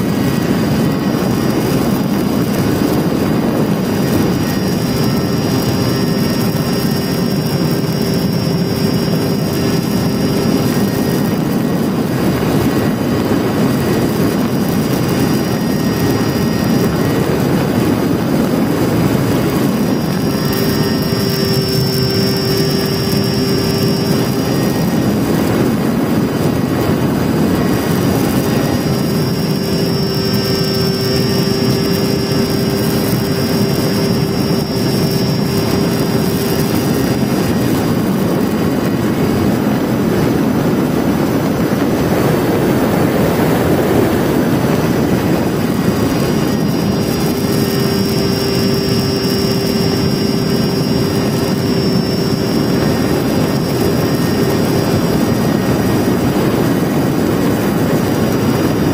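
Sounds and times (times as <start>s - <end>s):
electric motor whine: 0.0s - 58.9s.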